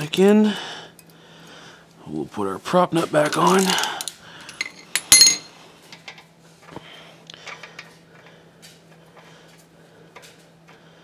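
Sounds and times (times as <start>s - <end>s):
sharp ringing metal clink: 4.6s - 5.5s.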